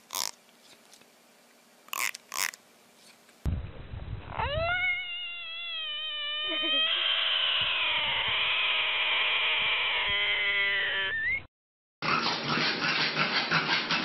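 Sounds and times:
animal's long drawn-out call: 4.4s - 11.3s.

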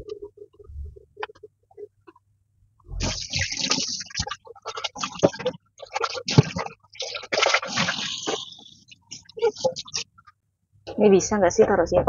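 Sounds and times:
water splashing in sink: 2.9s - 10.1s.

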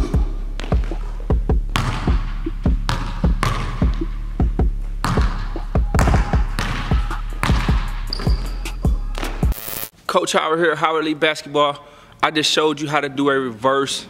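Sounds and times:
basketball bouncing on wooden floor: 0.0s - 8.5s
music with steady beat: 0.0s - 9.6s.

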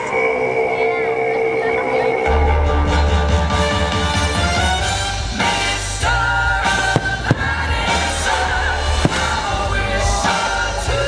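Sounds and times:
music with singing: 0.0s - 11.0s
firework bangs: 6.5s - 10.7s.

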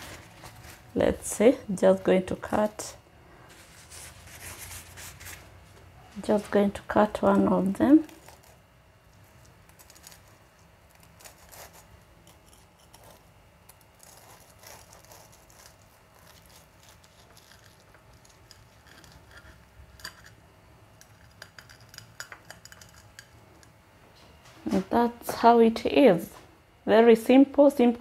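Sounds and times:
knife sawing through crust: 11.1s - 13.2s, 14.0s - 17.8s.

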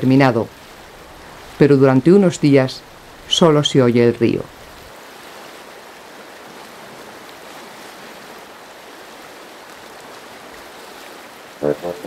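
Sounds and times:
river water flowing: 0.0s - 12.0s
music with quick repeated notes: 11.6s - 12.0s.

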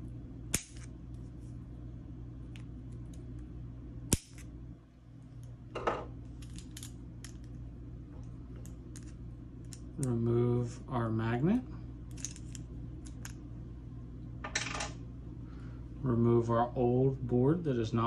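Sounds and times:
steady low hum: 0.0s - 18.0s
side cutters snipping wire: 0.5s - 0.9s.

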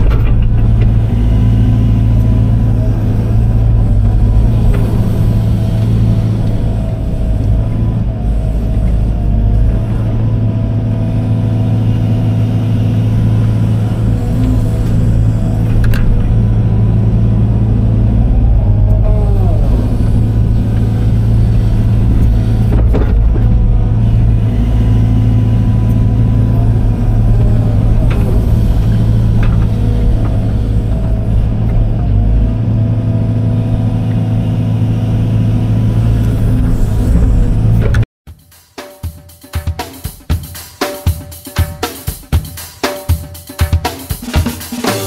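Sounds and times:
clunks: 0.0s - 8.0s, 14.2s - 16.9s, 19.8s - 32.8s
excavator diesel engine running: 0.0s - 38.1s.

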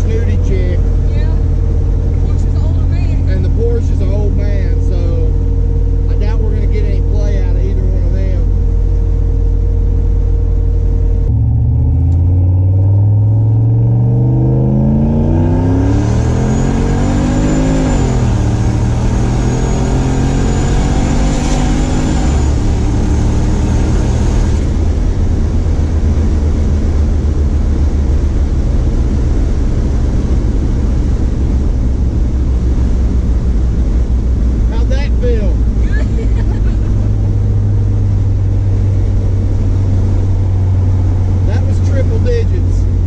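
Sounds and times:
engine revving at full throttle: 11.2s - 43.0s.

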